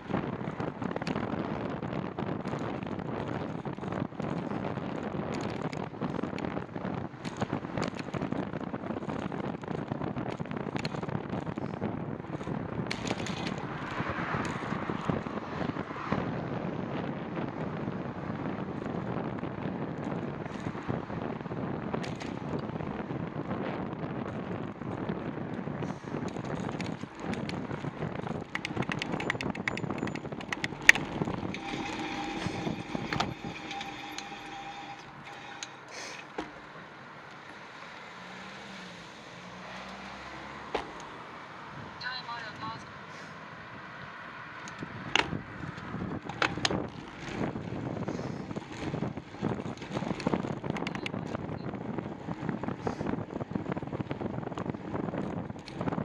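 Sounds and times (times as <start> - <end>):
bicycle knocks and rattles: 0.0 - 15.3, 21.8 - 22.8, 26.1 - 36.8, 40.6 - 41.1, 44.6 - 52.7, 53.6 - 56.0
wind rushing over microphone: 0.0 - 56.0.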